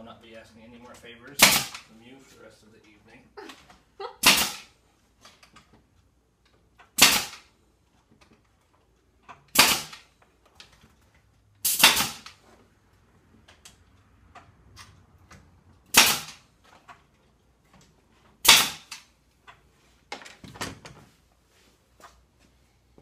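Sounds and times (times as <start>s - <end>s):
nail gun shots: 1.4s - 1.9s, 4.2s - 4.8s, 6.9s - 7.5s, 9.5s - 10.1s, 11.6s - 12.4s, 15.9s - 16.5s, 18.4s - 19.1s.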